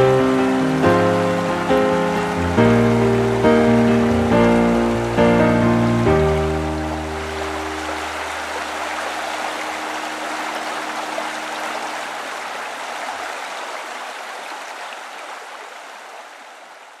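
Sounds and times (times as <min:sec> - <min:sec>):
low held music notes: 0:00.0 - 0:12.2
stream water rushing over rocks: 0:00.0 - 0:17.0.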